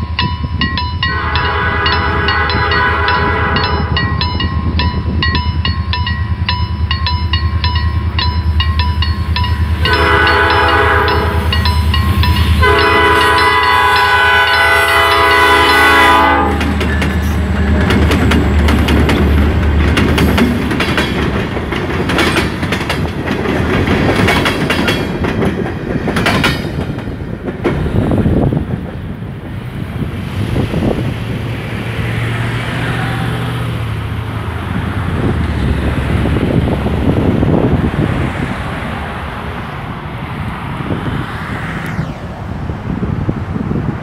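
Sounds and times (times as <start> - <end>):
level crossing warning signal: 0.0 - 17.1
freight cars clattering over rails: 0.0 - 29.0
locomotive engine rumbling: 0.0 - 44.0
locomotive horn: 1.0 - 4.1, 9.8 - 11.6, 12.5 - 17.2.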